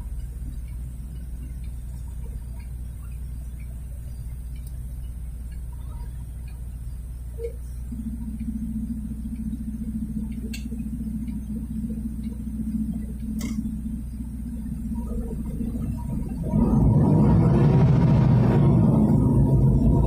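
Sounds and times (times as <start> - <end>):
faint clicks: 0.0 - 8.6, 9.2 - 16.6
car cabin rumble: 7.3 - 20.0.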